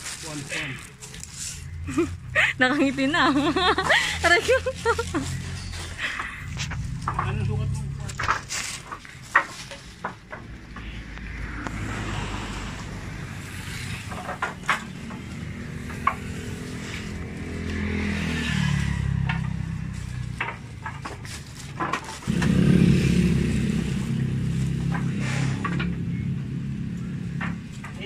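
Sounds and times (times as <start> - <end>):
engine running: 1.1 - 28.0
wooden boards knocking together: 5.4 - 11.0, 13.9 - 17.9, 19.1 - 22.6.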